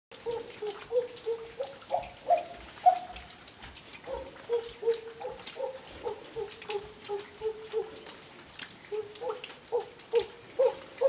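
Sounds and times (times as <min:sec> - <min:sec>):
water drops plinking into water: 0:00.1 - 0:11.0.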